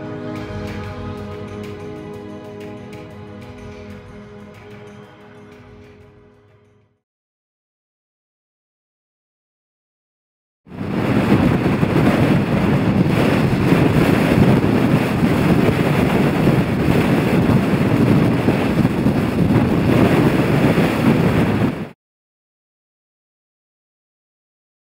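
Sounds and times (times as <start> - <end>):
strong wind buffeting microphone: 10.7 - 22.0.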